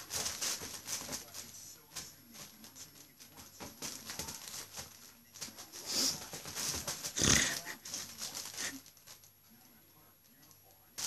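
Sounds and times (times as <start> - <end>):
kitten rustling in fabric tunnel: 0.0 - 3.2.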